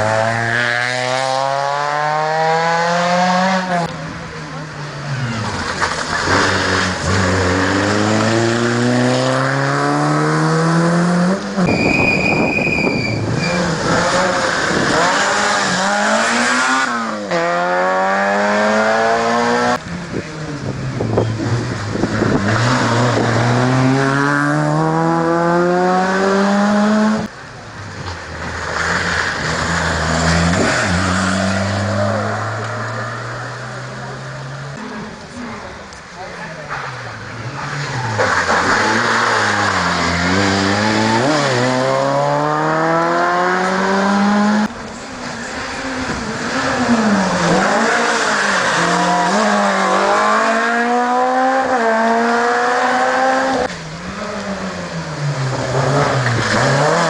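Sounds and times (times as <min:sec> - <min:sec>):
car engine accelerating through gears: 0:00.0 - 0:04.0, 0:05.1 - 0:11.7, 0:13.3 - 0:27.3, 0:37.3 - 0:57.0
brief high-pitched squeal: 0:11.6 - 0:13.8.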